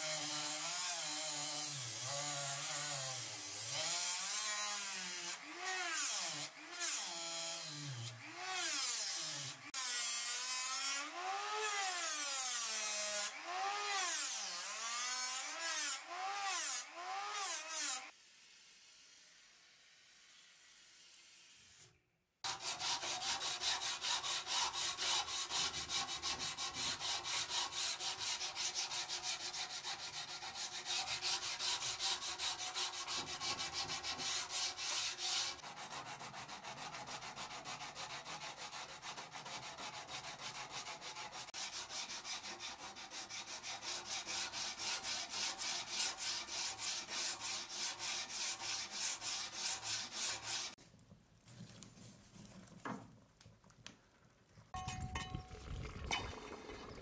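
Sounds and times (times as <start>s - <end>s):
hand file rasping on steel blade: 21.7s - 50.8s.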